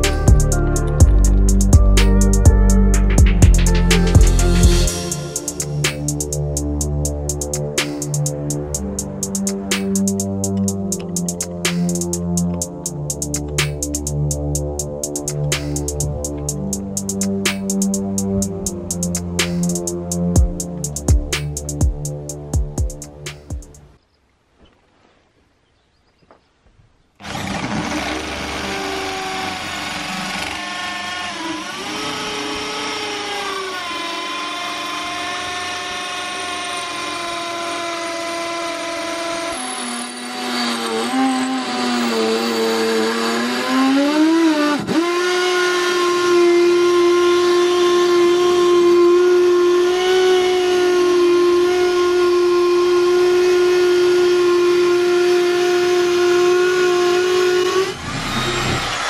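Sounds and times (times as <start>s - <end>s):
electric drill motor whine: 27.2s - 59.0s.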